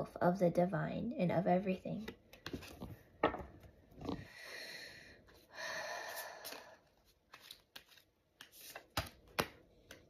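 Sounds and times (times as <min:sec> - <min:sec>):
cards being handled: 0:02.0 - 0:03.0, 0:06.4 - 0:10.0.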